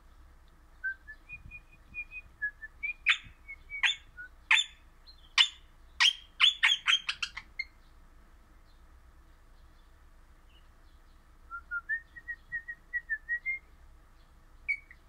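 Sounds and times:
parrot calling: 0:03.0 - 0:04.8, 0:05.4 - 0:07.7, 0:14.7 - 0:15.0.

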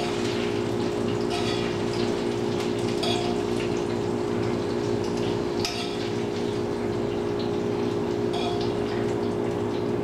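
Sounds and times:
low hum of fan: 0:00.0 - 0:10.0
metal fork clinking on pan: 0:03.0 - 0:03.4, 0:05.6 - 0:06.0, 0:08.3 - 0:08.8.

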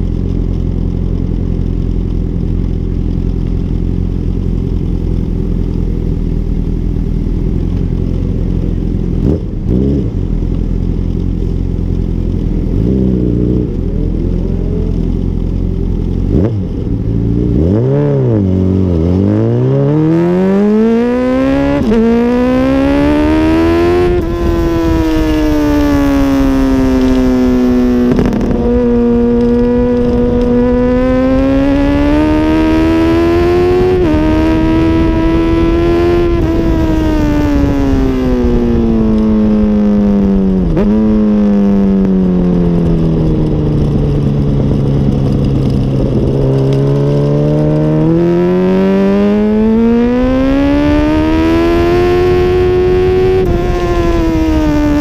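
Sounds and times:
motorcycle engine at speed: 0:00.0 - 0:55.0
wind rush: 0:21.6 - 0:55.0.

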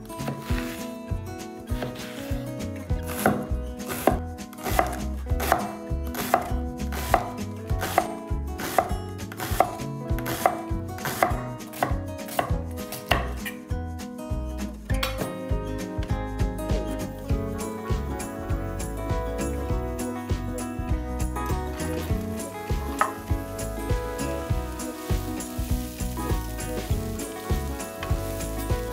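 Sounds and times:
knife chopping on cutting board: 0:03.0 - 0:13.4, 0:22.9 - 0:23.3.

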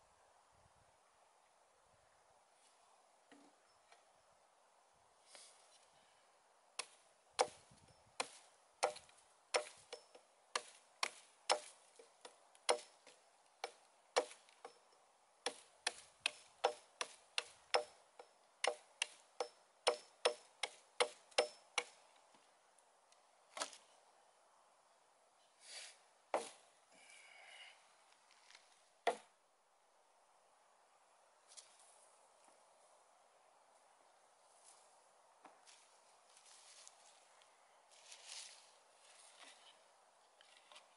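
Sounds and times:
hatchet chopping sticks: 0:15.5 - 0:17.9.

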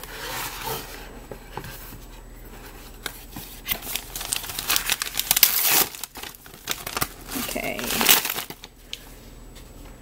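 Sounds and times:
paper rustling: 0:02.6 - 0:08.7.

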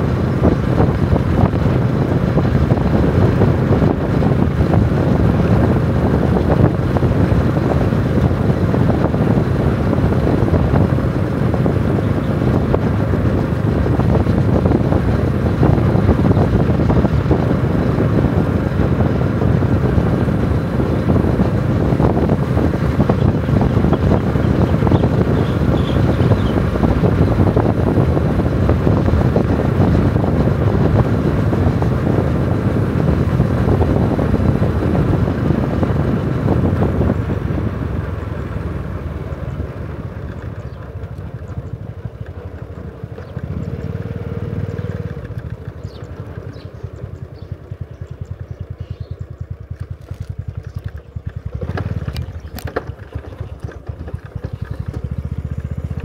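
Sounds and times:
vehicle engine running: 0:00.0 - 0:56.0.

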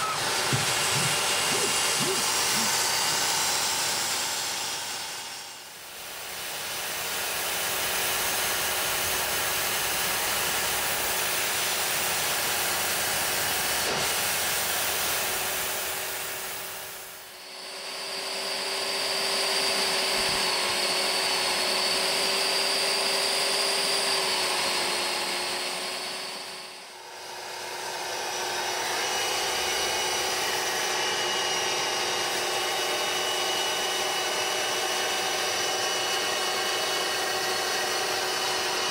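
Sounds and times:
high whistle: 0:00.0 - 0:00.4
carpet cleaner vacuum motor whining: 0:00.0 - 0:38.9.

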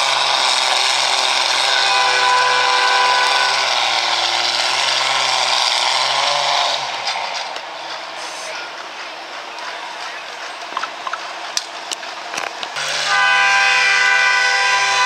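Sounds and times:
tractor engine running under load: 0:00.0 - 0:15.0.

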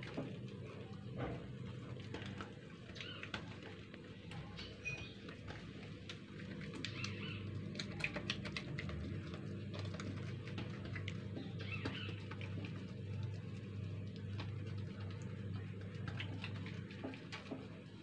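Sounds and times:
fingers patting dough: 0:00.0 - 0:18.0
birds chirping: 0:06.8 - 0:08.0, 0:10.1 - 0:13.3.

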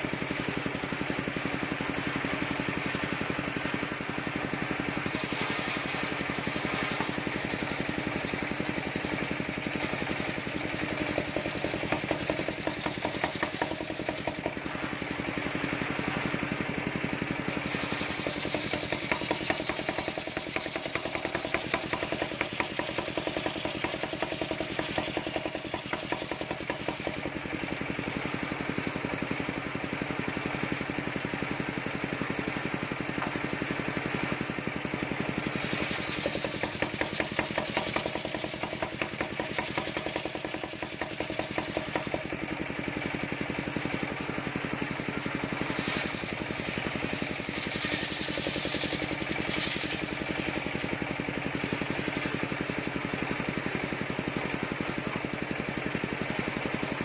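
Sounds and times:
circular saw running with knocking: 0:00.0 - 0:57.0
saw blade hissing through wood: 0:17.4 - 0:27.2, 0:35.2 - 0:42.2, 0:45.2 - 0:51.2.

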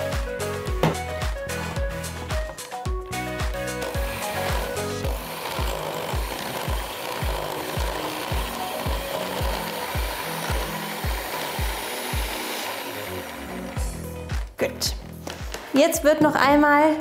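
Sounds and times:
music with deep beat: 0:00.0 - 0:15.7
electric hand mixer running: 0:00.8 - 0:14.5.

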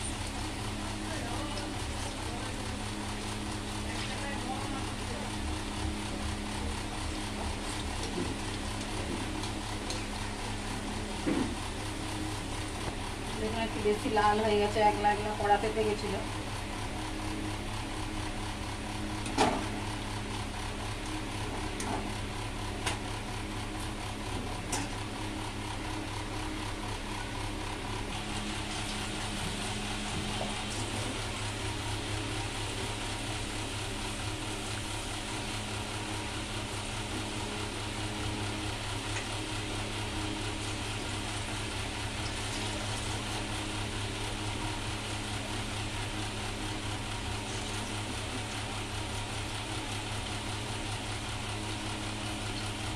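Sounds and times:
steady low hum: 0:00.0 - 0:52.9
hot oil sizzling: 0:26.1 - 0:52.9.

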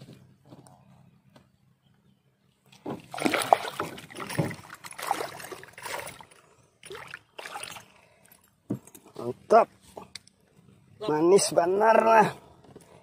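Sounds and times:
fish thrashing water splashing: 0:03.0 - 0:07.9.

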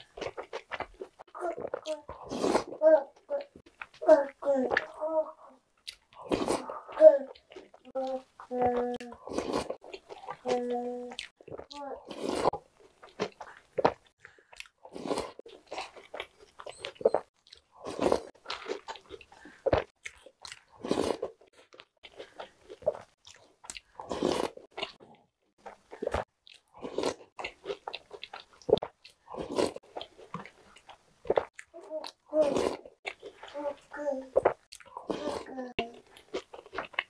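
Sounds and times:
close-miked chewing: 0:00.0 - 0:05.0, 0:05.6 - 0:37.0.

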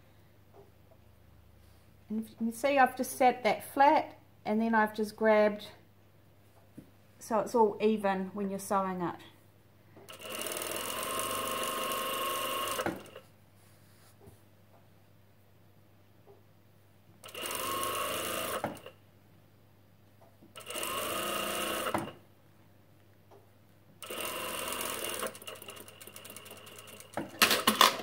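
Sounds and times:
sewing machine stitching: 0:10.1 - 0:13.2, 0:17.2 - 0:19.0, 0:20.6 - 0:22.2, 0:24.0 - 0:28.0.

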